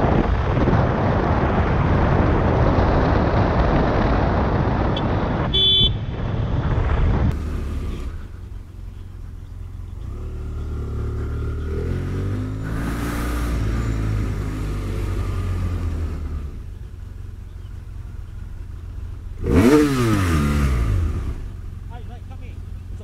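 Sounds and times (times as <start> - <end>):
wind rushing over microphone: 0.0 - 8.4
motorcycle engine accelerating: 0.0 - 23.0.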